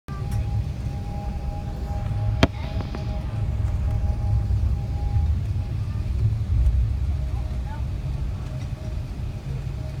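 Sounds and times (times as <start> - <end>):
airliner cabin rumble: 0.1 - 10.0
faint steady hum tone: 0.1 - 10.0.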